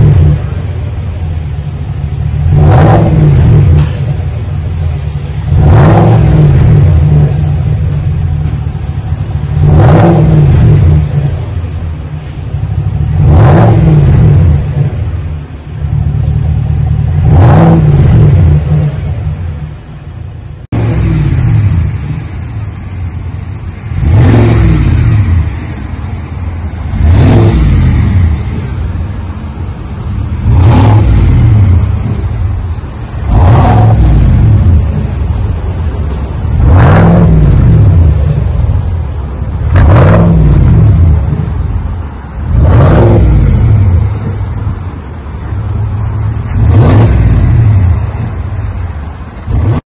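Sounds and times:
engine exhaust rumble revving: 0:00.0 - 0:49.8.

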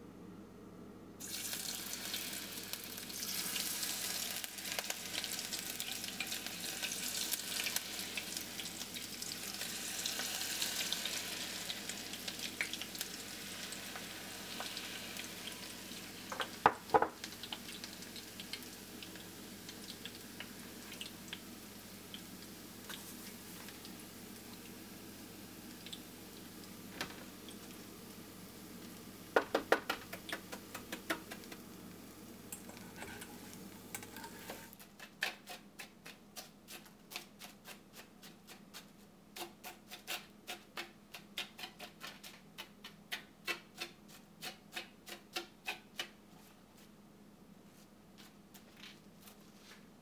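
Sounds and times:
batter frying in hot oil: 0:01.2 - 0:46.1.

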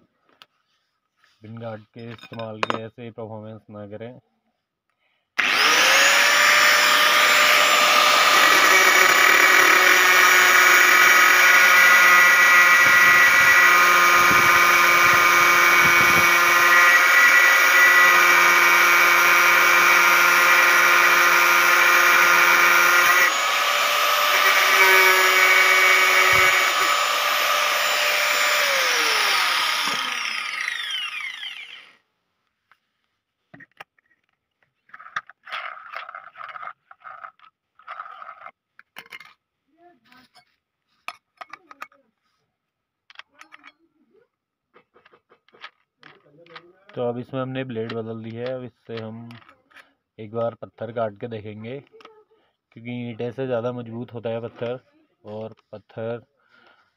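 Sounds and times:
angle grinder cutting steel rod: 0:05.4 - 0:32.0.

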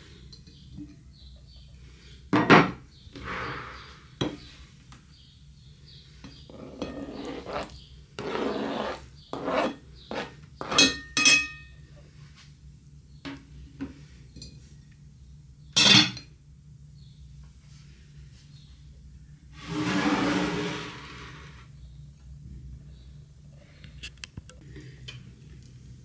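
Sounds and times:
dishes and cutlery clinking: 0:10.6 - 0:11.7
scraping and rustling: 0:19.6 - 0:21.7.

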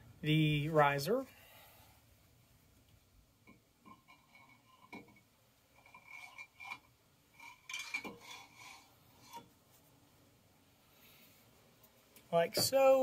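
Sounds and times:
metal clinking and scraping: 0:03.8 - 0:09.5.

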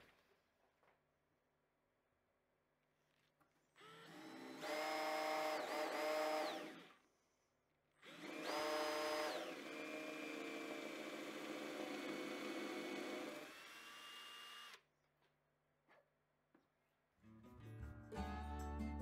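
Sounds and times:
power drill boring into wood: 0:03.8 - 0:07.1, 0:08.0 - 0:14.8.

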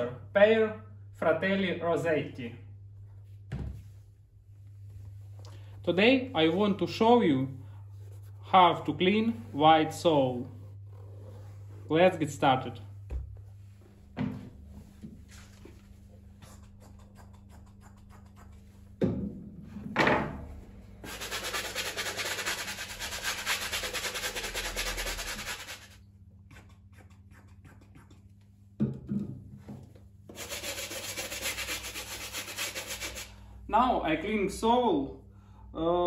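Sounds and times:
brush scrubbing shoe sole: 0:21.0 - 0:28.2, 0:30.3 - 0:33.3.

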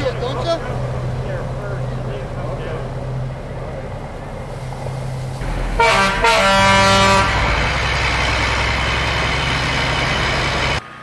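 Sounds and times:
diesel engine running loudly: 0:00.0 - 0:11.0
truck horn blast: 0:05.4 - 0:09.0.

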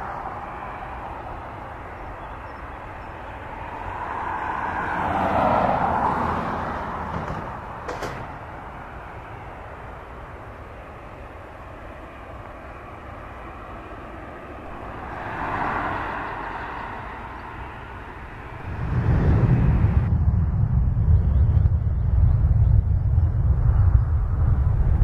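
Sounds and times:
jet engines idling: 0:06.8 - 0:20.1.

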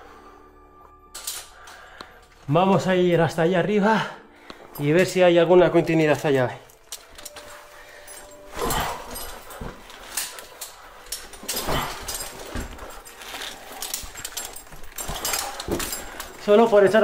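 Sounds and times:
person breathing heavily: 0:00.0 - 0:00.8, 0:01.4 - 0:02.4, 0:03.9 - 0:04.8, 0:07.4 - 0:16.4
climbing gear clicks: 0:05.9 - 0:17.0.

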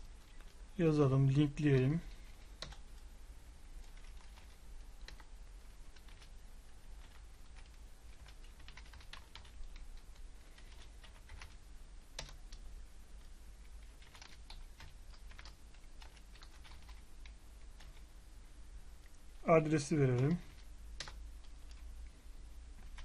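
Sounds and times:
typing on computer keyboard: 0:02.6 - 0:02.8, 0:03.8 - 0:06.3, 0:07.0 - 0:11.6, 0:12.2 - 0:12.6, 0:13.8 - 0:18.0, 0:20.1 - 0:21.8, 0:22.8 - 0:23.0.

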